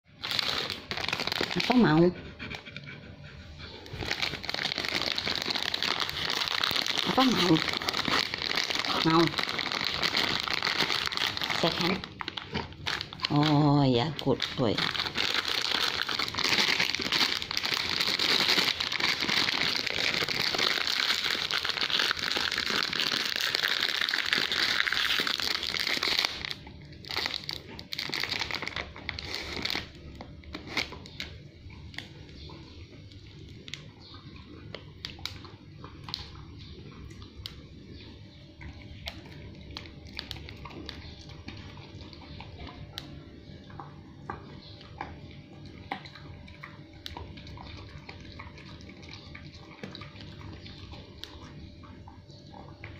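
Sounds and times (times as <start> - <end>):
plastic packet crinkling: 0.1 - 1.9, 3.9 - 31.3, 39.0 - 41.8
dog chewing dental stick: 38.6 - 52.9.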